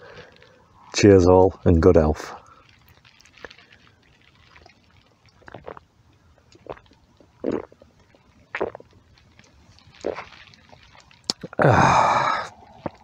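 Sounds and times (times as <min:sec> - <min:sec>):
man gulping beer: 0:05.4 - 0:05.8, 0:06.5 - 0:09.0, 0:10.0 - 0:13.0.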